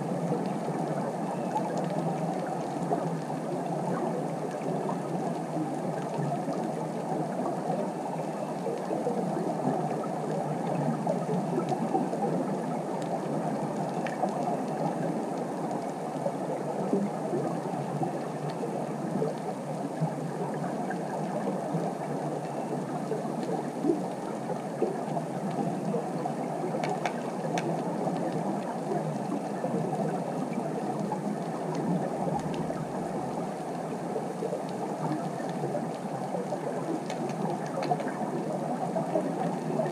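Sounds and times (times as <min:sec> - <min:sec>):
faint clicks: 0:00.2 - 0:08.0, 0:08.6 - 0:16.2, 0:16.8 - 0:33.8, 0:34.4 - 0:39.9.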